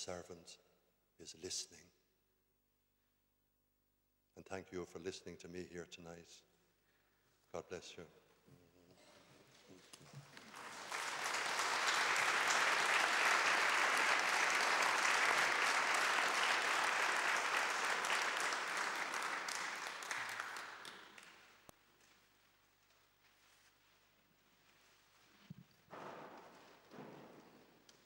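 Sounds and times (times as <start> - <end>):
congregation applauding: 10.0 - 21.7.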